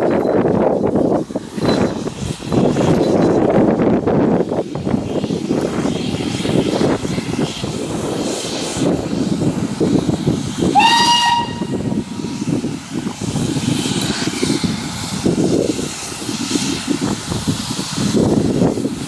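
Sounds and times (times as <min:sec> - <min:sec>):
steady steam hissing: 0:00.0 - 0:19.0
steam locomotive whistle blast: 0:10.7 - 0:12.0.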